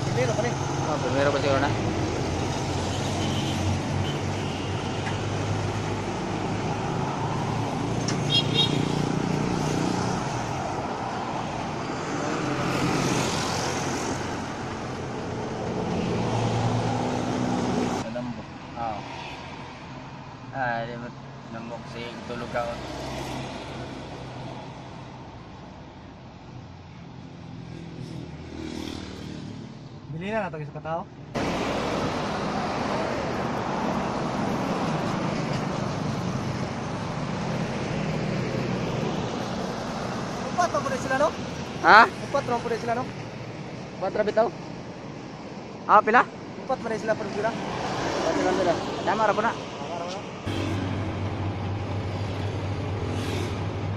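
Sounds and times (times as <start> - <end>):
vehicles passing: 0.0 - 53.9
motorcycle: 27.6 - 29.8.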